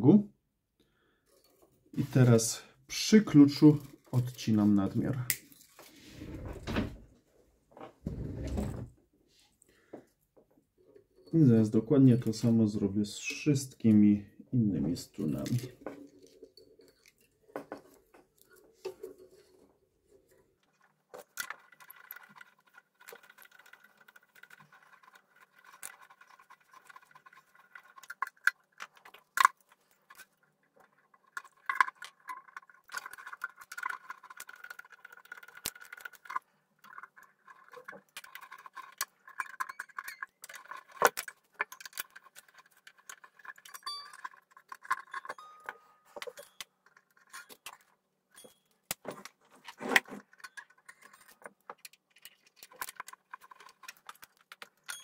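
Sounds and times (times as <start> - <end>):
metal strings jangling and rubbing: 15.0 - 55.0.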